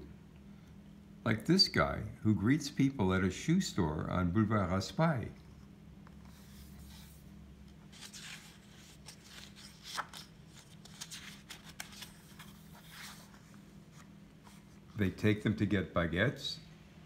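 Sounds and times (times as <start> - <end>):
low steady hum: 0.0 - 17.0
book pages rustling: 5.3 - 15.1.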